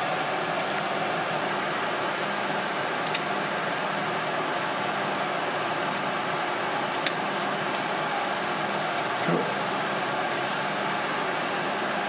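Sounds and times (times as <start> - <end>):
steady fan noise: 0.0 - 12.0
small parts clicking: 3.0 - 3.3, 5.8 - 6.1.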